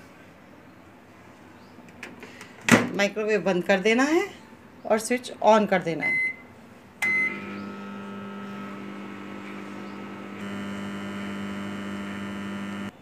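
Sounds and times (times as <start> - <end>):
microwave oven beep: 6.0 - 6.4, 7.0 - 13.0
microwave oven humming: 7.0 - 13.0.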